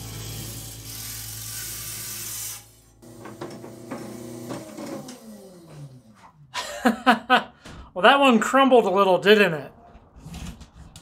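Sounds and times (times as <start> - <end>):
saw blade cutting stone hiss: 0.0 - 3.0
saw winding down whine: 0.0 - 6.3.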